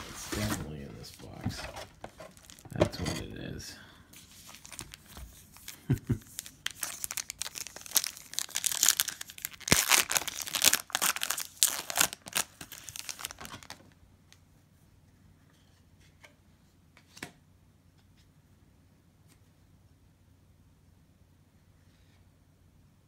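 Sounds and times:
foil wrapper tearing and crinkling: 2.3s - 2.6s, 4.5s - 13.8s.

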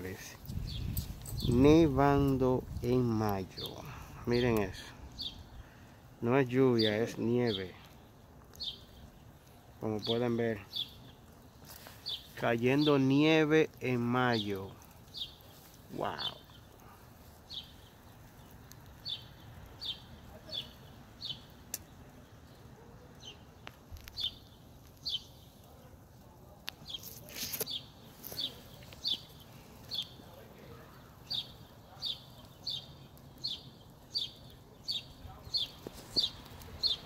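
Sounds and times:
bird chirping: 2.8s - 25.9s, 26.8s - 37.0s.

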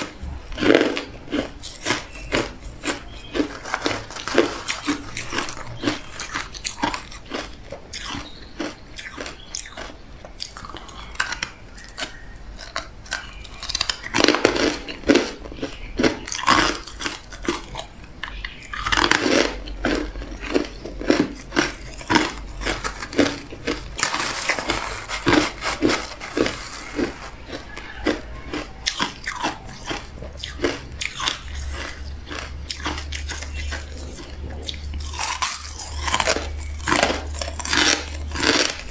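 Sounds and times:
crushed ice being chewed: 0.0s - 38.9s.

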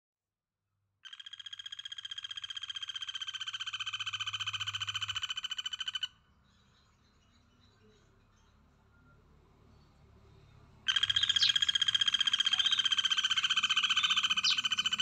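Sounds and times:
frog pulsed trill: 1.0s - 6.1s, 10.9s - 15.0s
faint bird chirps: 1.0s - 15.0s.

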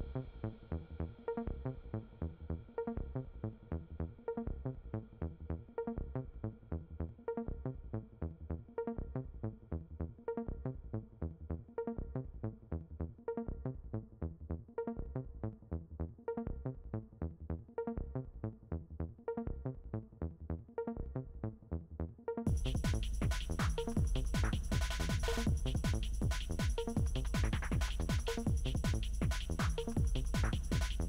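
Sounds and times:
electronic music with steady beat: 22.5s - 31.0s.

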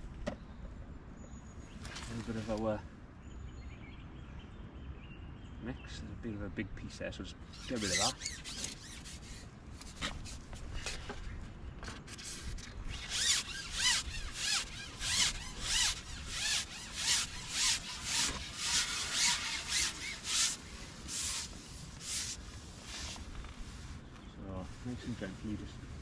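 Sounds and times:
fishing pole sections rubbing and squeaking: 7.5s - 24.0s.

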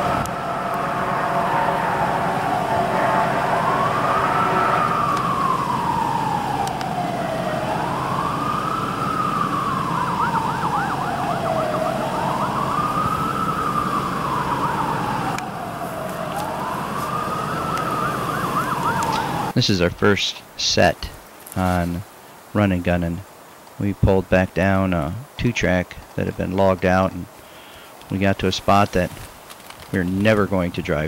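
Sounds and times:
faint siren warbling: 0.0s - 19.6s
siren wailing: 0.0s - 19.6s.

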